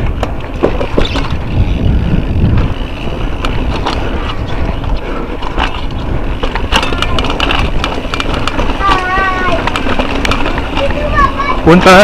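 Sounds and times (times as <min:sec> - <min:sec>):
wind on microphone: 0:00.0 - 0:08.8
bike rattling over bumps: 0:00.0 - 0:12.0
tyres rumbling on dirt: 0:00.0 - 0:12.0.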